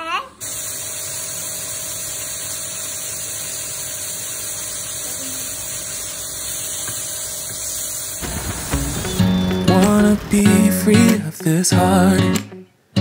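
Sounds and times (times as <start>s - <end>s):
espresso machine pump humming: 0.4s - 8.2s
coffee pouring hiss: 0.4s - 11.5s.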